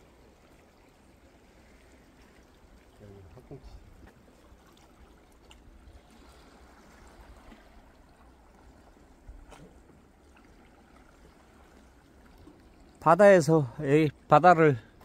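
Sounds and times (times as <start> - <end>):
sea lapping against rocks: 0.1 - 13.0.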